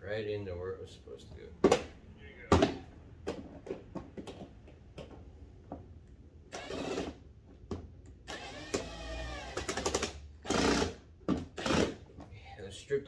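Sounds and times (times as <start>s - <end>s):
cordless drill motor whirring: 6.5s - 7.1s, 8.3s - 10.9s.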